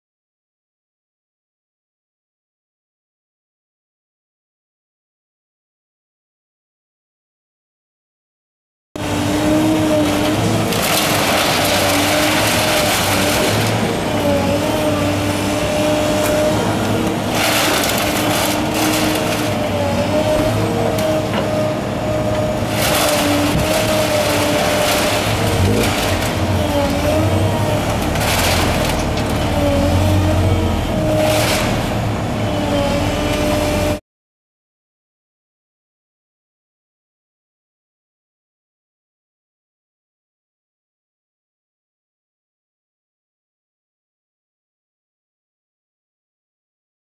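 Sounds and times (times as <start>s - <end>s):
machine engine and hydraulics whine: 9.0s - 34.0s
scrap crunching and clattering: 10.0s - 14.9s, 16.1s - 19.8s, 22.7s - 30.2s.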